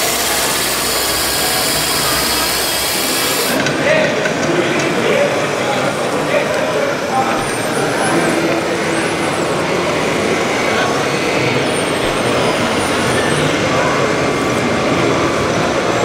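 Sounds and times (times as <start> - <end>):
high electric motor whine: 0.0 - 3.6
steady mechanical din: 0.0 - 4.5
murmur of voices: 0.0 - 16.0.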